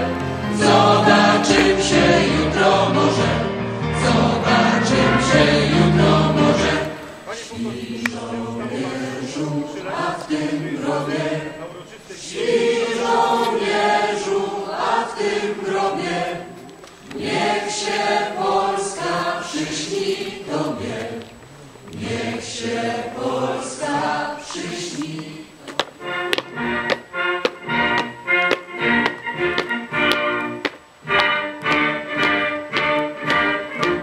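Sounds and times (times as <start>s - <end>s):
choir singing: 0.0s - 26.9s.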